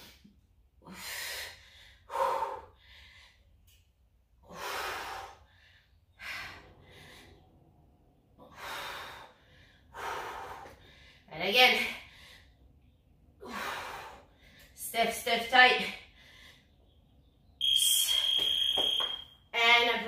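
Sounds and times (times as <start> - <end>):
woman breathing hard: 0.0 - 3.7, 4.4 - 7.8, 8.4 - 11.3, 13.4 - 14.8.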